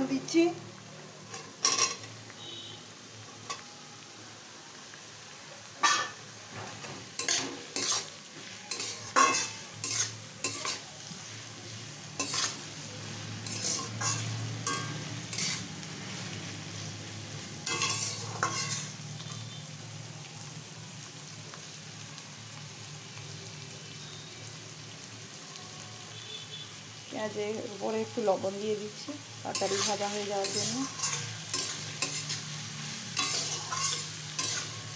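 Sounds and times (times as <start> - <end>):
onions sizzling in oil: 0.0 - 34.9
metal spatula scraping wok: 1.2 - 2.6, 5.8 - 11.4, 12.0 - 19.6, 29.4 - 34.9.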